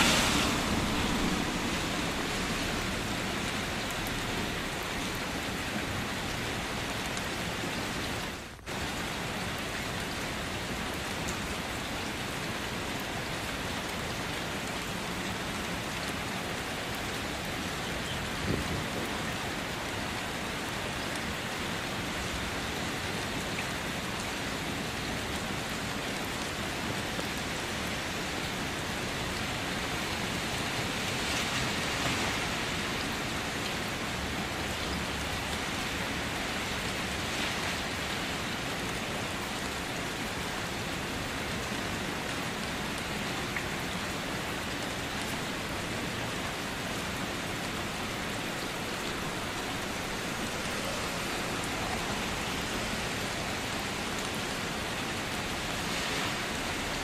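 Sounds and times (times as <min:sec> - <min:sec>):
rain spattering on surfaces: 0:00.0 - 0:57.0.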